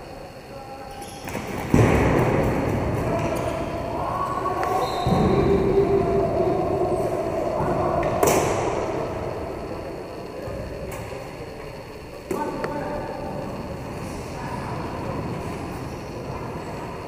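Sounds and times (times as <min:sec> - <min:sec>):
skate wheels rumbling on floor: 0:01.2 - 0:10.9, 0:13.3 - 0:17.0.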